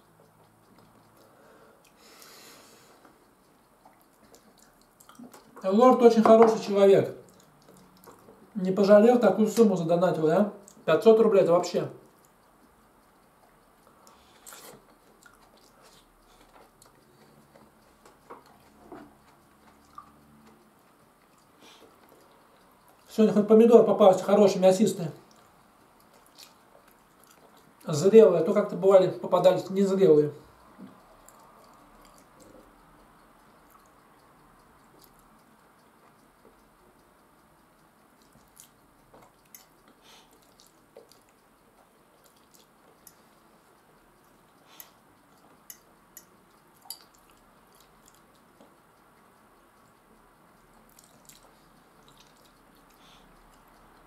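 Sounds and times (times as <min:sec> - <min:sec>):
person chewing: 0:00.0 - 0:05.6, 0:07.2 - 0:08.6, 0:13.3 - 0:23.1, 0:25.2 - 0:27.8, 0:30.8 - 0:36.6, 0:38.1 - 0:54.0
fork clicking against ceramic bowl: 0:38.2 - 0:43.2, 0:44.2 - 0:48.2.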